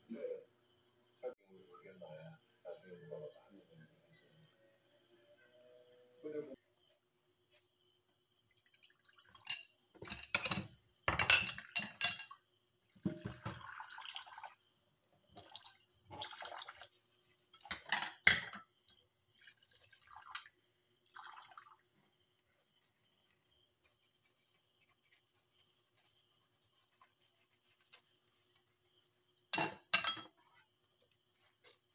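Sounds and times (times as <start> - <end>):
dishes clattering in metal sink: 9.3 - 12.4, 13.0 - 13.7, 17.6 - 18.7, 29.5 - 30.4
tap water splashing into bowl: 13.0 - 14.5.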